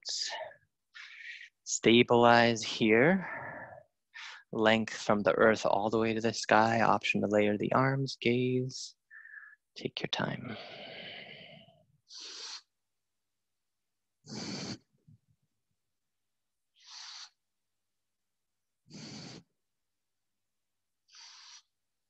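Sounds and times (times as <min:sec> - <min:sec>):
person breathing: 0:00.9 - 0:01.6, 0:03.2 - 0:04.6, 0:09.1 - 0:09.6, 0:10.5 - 0:12.7, 0:14.3 - 0:15.0, 0:16.8 - 0:17.4, 0:18.9 - 0:19.5, 0:21.1 - 0:21.7.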